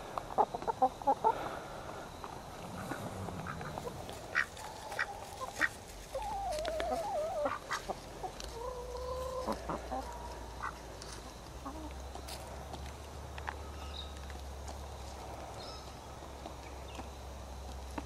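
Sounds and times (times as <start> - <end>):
hens pecking taps: 2.2 - 13.6
hen calling: 2.5 - 10.8.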